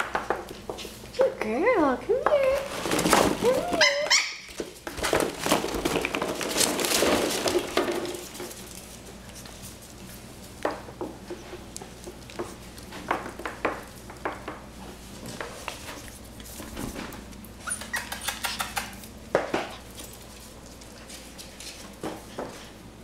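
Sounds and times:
claws clicking on tile and plastic: 0:17.7 - 0:19.2.

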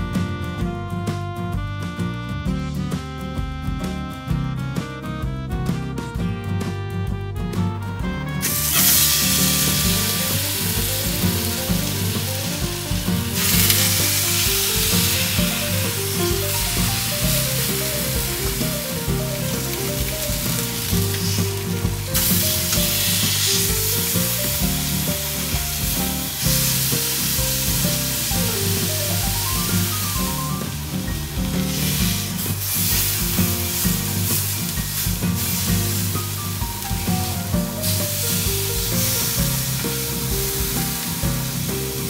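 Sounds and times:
meat sizzling in a frying pan: 0:08.4 - 0:42.0.

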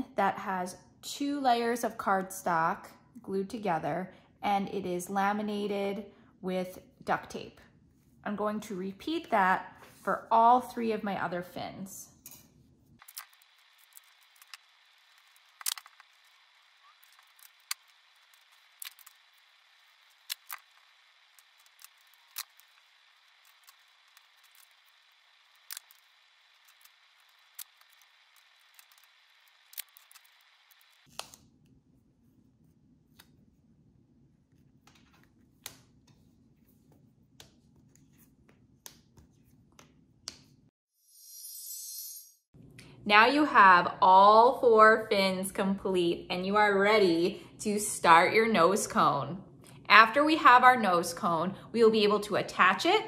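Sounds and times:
handling of tape and cardstock: 0:13.0 - 0:33.7.

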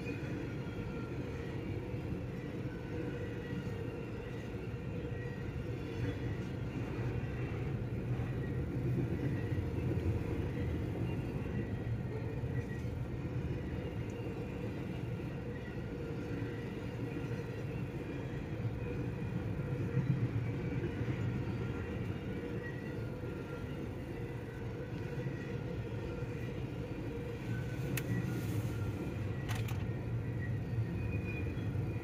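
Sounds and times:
train wheels rumbling on rails: 0:00.0 - 0:32.0.

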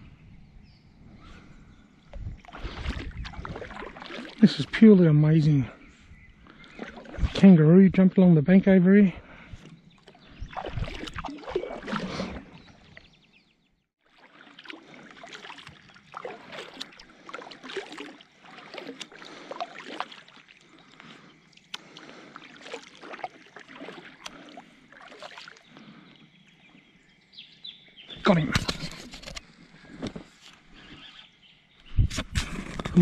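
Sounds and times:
kayak paddle strokes in water: 0:02.4 - 0:04.7, 0:06.5 - 0:07.5, 0:09.6 - 0:13.1, 0:14.0 - 0:26.1.

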